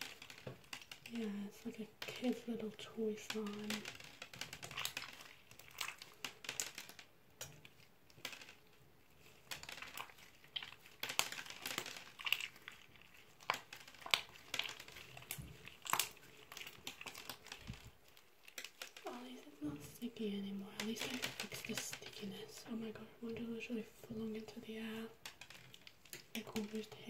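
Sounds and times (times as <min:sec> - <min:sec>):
slime with beads squeezed by hand: 0:00.0 - 0:20.2.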